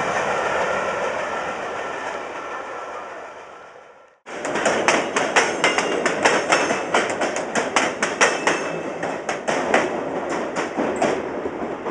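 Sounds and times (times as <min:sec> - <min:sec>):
railcar wheels clacking over rails: 0:04.3 - 0:11.9.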